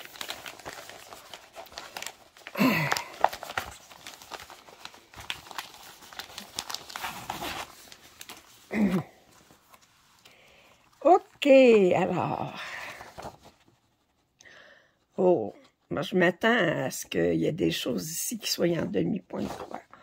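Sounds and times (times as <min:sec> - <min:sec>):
plastic packaging crinkling: 0:00.0 - 0:10.4
person murmuring: 0:02.5 - 0:03.2, 0:08.7 - 0:09.2.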